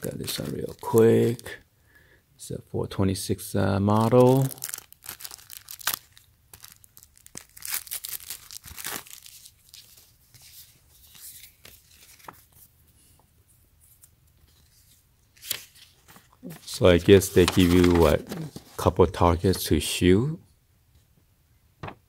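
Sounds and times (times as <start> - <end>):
plastic bag crinkling and tearing: 0.0 - 1.6, 4.0 - 10.0, 15.4 - 18.8
paper sheets rustling: 7.7 - 13.2, 13.9 - 19.6.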